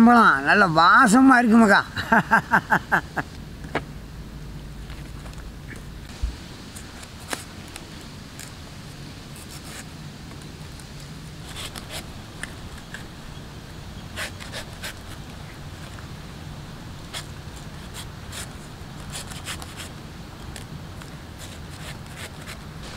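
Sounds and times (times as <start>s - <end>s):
knife scraping fruit skin: 9.3s - 9.9s, 10.8s - 13.1s, 14.0s - 15.9s, 17.0s - 22.7s.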